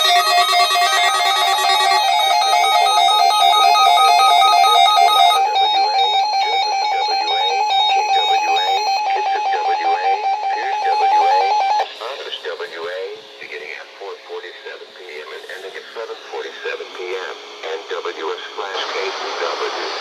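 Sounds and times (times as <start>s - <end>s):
weather alert radios beeping: 0.0s - 12.2s.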